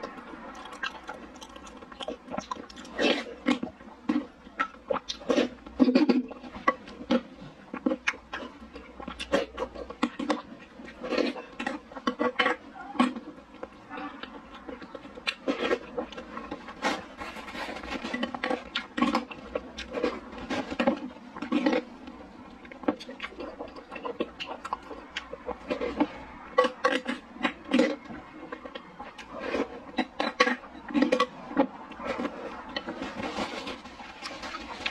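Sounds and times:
sticky chewing: 0.0 - 34.9.

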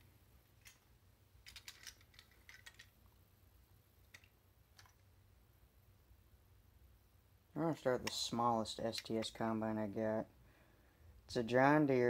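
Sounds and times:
plastic toy parts clicking and rattling: 0.5 - 3.1, 4.0 - 5.1, 7.7 - 9.4.

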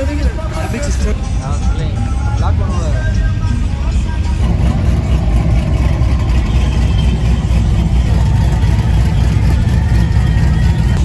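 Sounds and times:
cars cruising past: 4.3 - 11.0.

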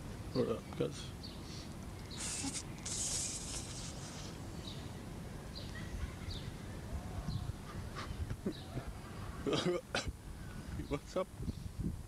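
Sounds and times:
faint bird chirps: 0.3 - 9.5.

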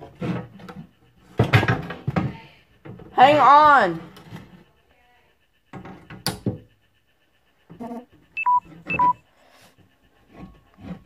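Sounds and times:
knocks and handling noise: 0.0 - 3.5
electronic beeps: 8.4 - 9.2.

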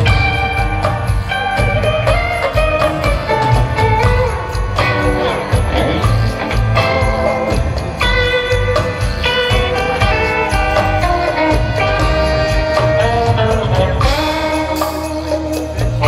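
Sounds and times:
jingling percussion: 0.0 - 16.0
live band playing: 0.0 - 16.0.

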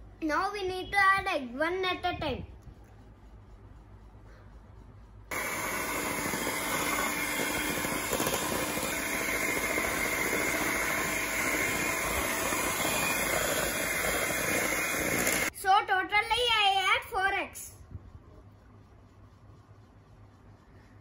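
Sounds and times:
electric hand mixer whisking: 5.3 - 15.5.

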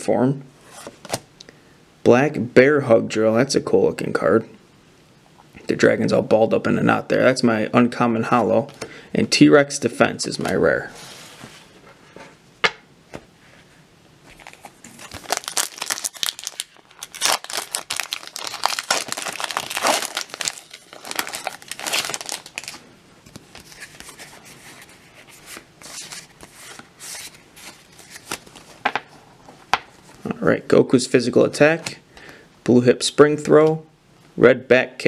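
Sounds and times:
foil wrapper tearing and crinkling: 14.4 - 22.8.

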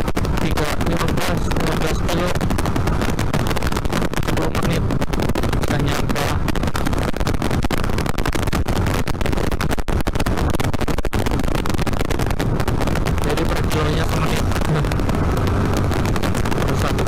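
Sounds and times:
wind and road noise: 0.0 - 17.0
motorcycle engine running: 12.4 - 17.0.

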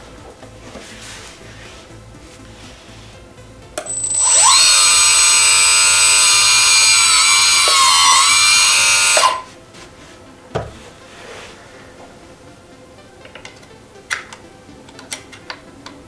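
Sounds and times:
hydraulic pump motor whining: 3.8 - 9.5.

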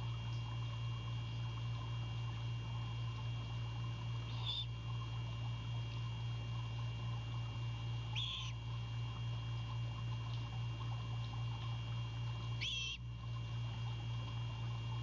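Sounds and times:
low electrical hum: 0.0 - 15.0
owlet begging calls: 4.3 - 4.8, 8.1 - 8.6, 12.6 - 13.1.

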